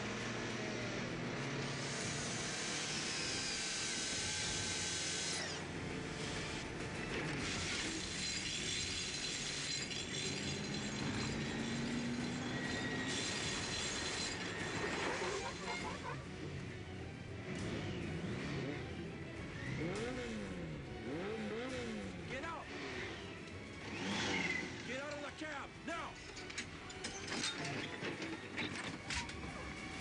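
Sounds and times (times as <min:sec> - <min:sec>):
motorcycle scraping on asphalt: 0:21.1 - 0:25.1.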